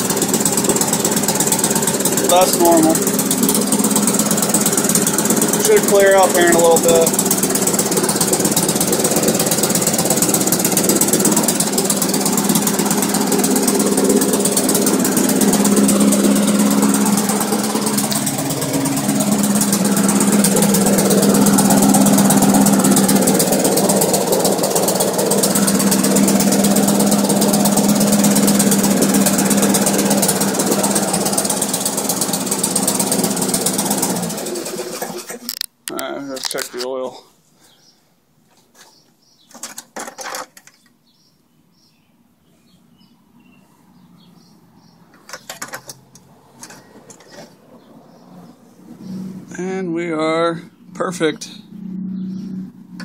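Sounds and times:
lawn mower engine running: 0:00.0 - 0:36.6, 0:45.0 - 0:47.8.

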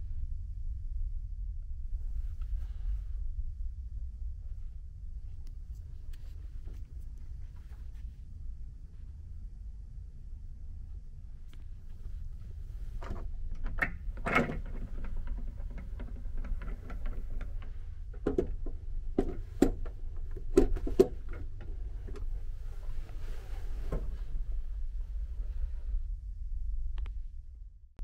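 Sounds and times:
steady low hum: 0:00.0 - 0:28.0
rustling: 0:05.2 - 0:08.3, 0:11.5 - 0:25.9.

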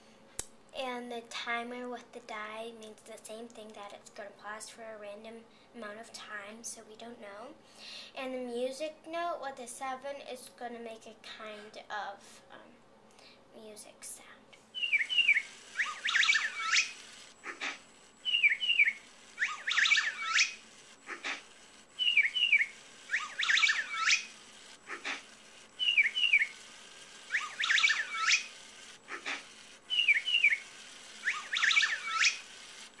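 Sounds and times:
bird chirp sound effect: 0:14.8 - 0:21.4, 0:22.0 - 0:24.3, 0:27.3 - 0:28.5, 0:31.2 - 0:32.4.

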